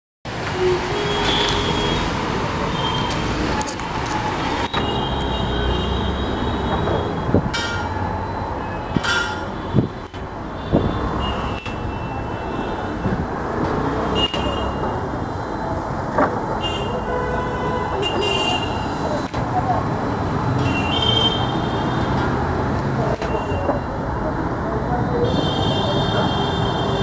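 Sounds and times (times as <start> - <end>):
street traffic rumble: 0.3 - 27.0.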